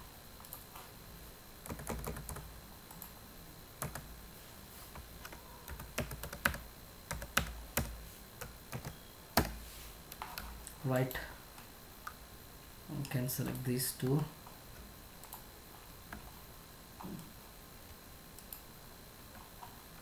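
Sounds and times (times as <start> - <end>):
keyboard keys clicking: 1.7 - 2.4, 5.0 - 9.6.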